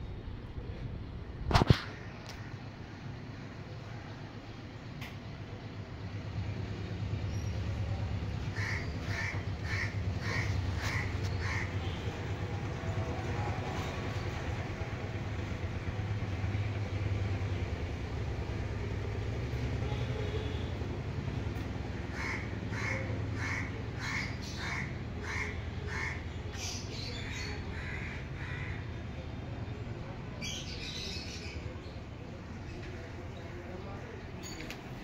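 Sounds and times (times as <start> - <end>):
crow cawing: 8.5 - 11.8, 22.1 - 26.3, 27.7 - 29.0.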